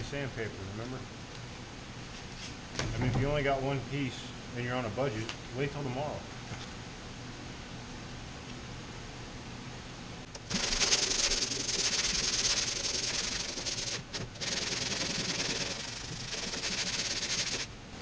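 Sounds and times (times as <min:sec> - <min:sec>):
blower humming: 0:00.0 - 0:18.0
sandpaper rasping by hand: 0:10.5 - 0:17.7.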